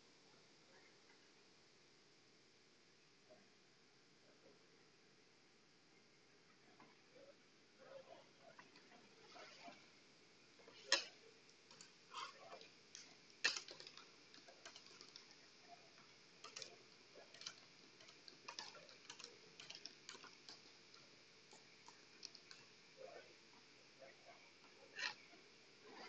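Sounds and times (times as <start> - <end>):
room hiss: 0.0 - 26.0
small clicks and ticks: 6.5 - 26.0.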